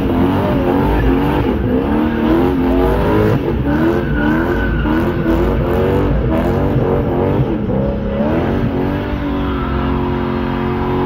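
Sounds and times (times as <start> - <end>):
car engine revving: 0.0 - 11.0
tyres squealing: 0.4 - 5.8.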